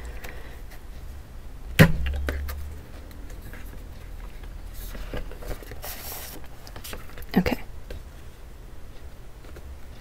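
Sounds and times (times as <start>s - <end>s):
pages rustling in binder: 3.3s - 7.2s.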